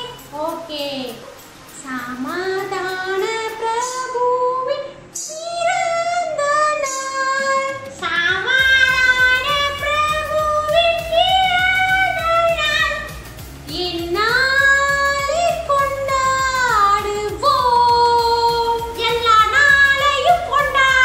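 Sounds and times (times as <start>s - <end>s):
steady backing beat: 0.0s - 4.1s, 7.6s - 21.0s
high-pitched voice singing: 1.9s - 13.1s.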